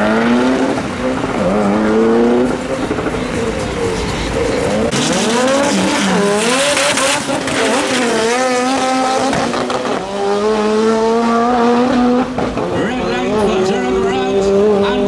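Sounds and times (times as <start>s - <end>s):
car engine accelerating hard: 0.0s - 15.0s
race car engines revving: 0.0s - 15.0s.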